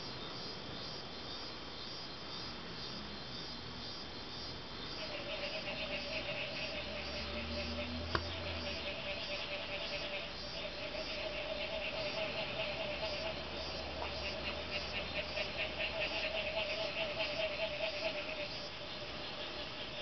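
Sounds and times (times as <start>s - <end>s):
low-pitched frog call: 4.8s - 20.0s.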